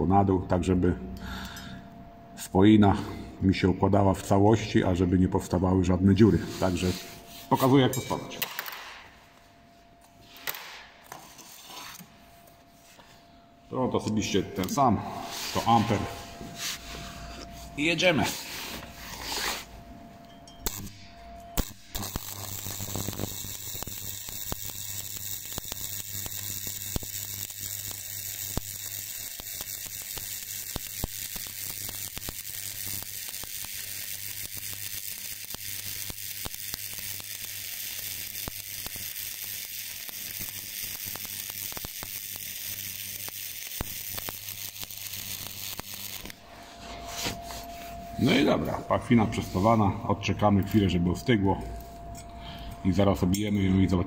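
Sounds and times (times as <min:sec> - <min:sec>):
welding arc crackling: 0:20.6 - 0:46.6.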